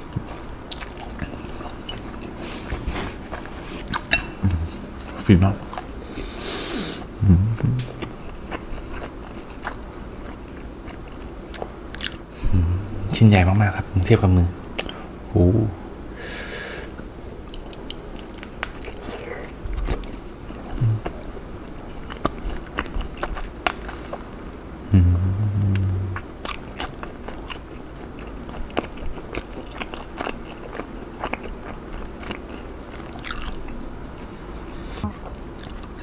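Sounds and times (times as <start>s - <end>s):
crunching and chewing: 0.1s - 6.0s, 8.0s - 12.3s, 17.4s - 24.3s, 26.2s - 36.0s
person humming mmm: 4.4s - 4.8s, 6.5s - 8.1s, 12.4s - 13.1s, 20.7s - 21.1s, 24.9s - 26.2s.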